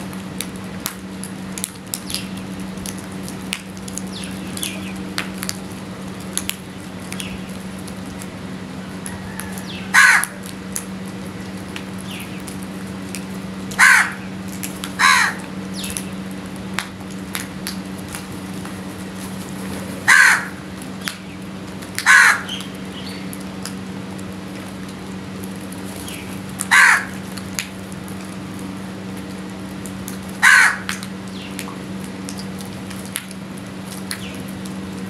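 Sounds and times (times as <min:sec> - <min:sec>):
beaks pecking on concrete: 0:00.4 - 0:08.3, 0:09.0 - 0:23.8, 0:25.5 - 0:28.3, 0:29.2 - 0:34.8
crows cawing: 0:09.0 - 0:10.5, 0:13.7 - 0:14.4, 0:15.0 - 0:15.5, 0:20.0 - 0:20.7, 0:22.0 - 0:22.8, 0:26.6 - 0:27.3, 0:30.4 - 0:31.1.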